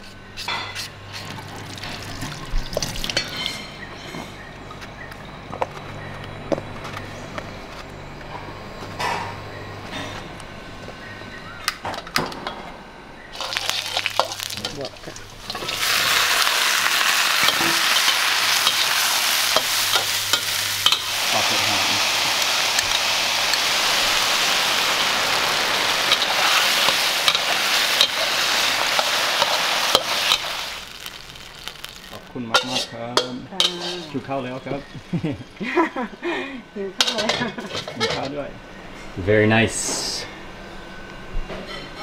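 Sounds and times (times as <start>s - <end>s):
vegetables sizzling in a wok: 13.3s - 35.6s
metal spatula scraping a pan: 32.5s - 34.2s.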